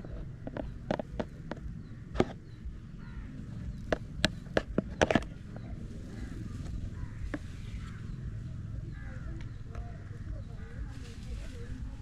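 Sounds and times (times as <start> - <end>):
sharp knocks and taps: 0.0 - 2.4, 3.7 - 5.3
steady low rumble: 0.0 - 12.0.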